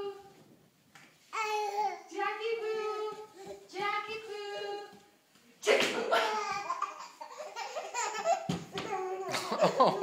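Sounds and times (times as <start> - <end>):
baby babbling: 1.4 - 2.1, 6.2 - 9.3.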